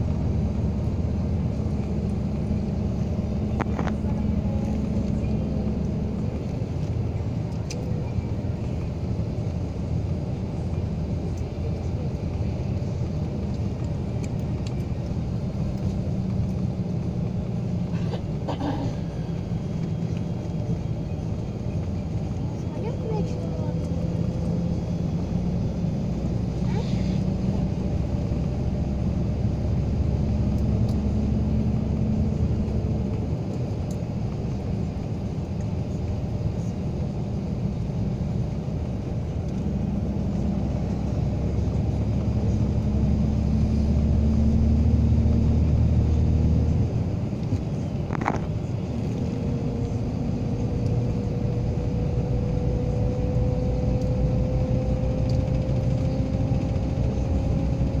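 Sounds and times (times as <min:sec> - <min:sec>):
car engine and road drone: 0:00.0 - 0:58.0
rising engine tone: 0:48.6 - 0:58.0.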